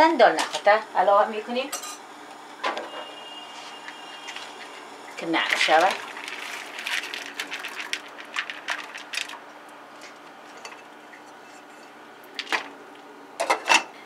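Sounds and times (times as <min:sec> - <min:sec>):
grains clicking into a pot: 0:05.5 - 0:09.4.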